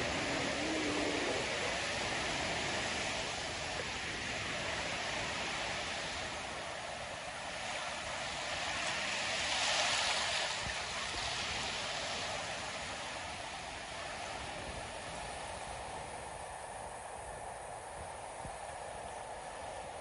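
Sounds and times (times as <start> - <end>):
ocean surf breaking: 0.0 - 20.0.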